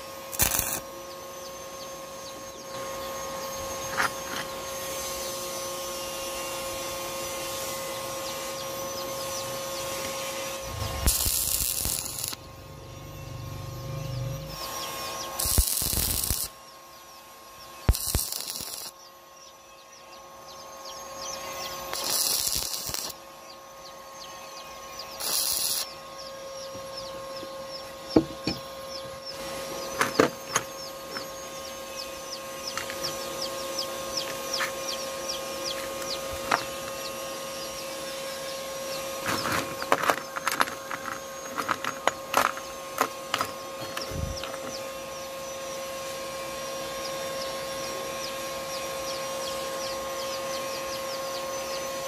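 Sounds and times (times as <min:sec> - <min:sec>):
welding arc crackling hiss: 0:00.0 - 0:00.9, 0:09.4 - 0:12.8, 0:14.4 - 0:16.6, 0:17.8 - 0:19.0, 0:21.6 - 0:23.2, 0:25.2 - 0:25.9
steady hum: 0:00.0 - 0:52.0
metal parts clinking: 0:39.3 - 0:42.6.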